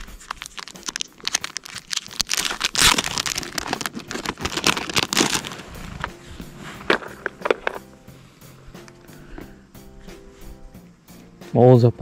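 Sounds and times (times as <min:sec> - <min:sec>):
plastic packet crinkling: 0:00.0 - 0:06.1, 0:06.8 - 0:07.8.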